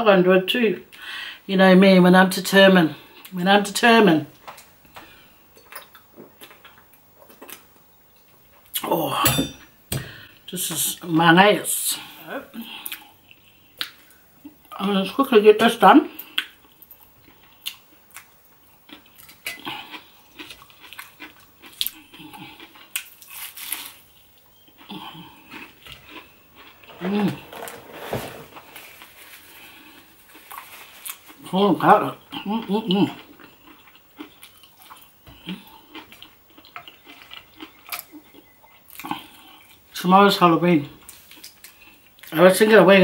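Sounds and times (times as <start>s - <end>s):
crunchy chewing: 16.2s - 31.5s, 32.2s - 39.8s.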